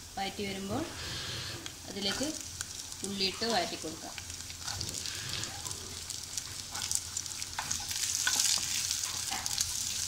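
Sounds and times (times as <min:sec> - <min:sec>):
onions sizzling in hot oil: 0:00.0 - 0:10.0
wooden spoon scraping a pan: 0:06.4 - 0:09.8.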